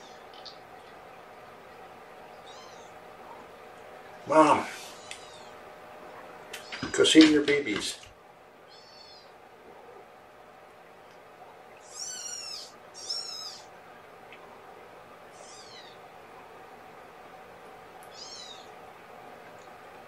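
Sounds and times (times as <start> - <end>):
kittens mewing: 2.4 - 3.4, 4.3 - 5.6, 6.5 - 7.0, 8.7 - 9.4, 11.8 - 13.7, 15.3 - 16.1, 18.1 - 18.8.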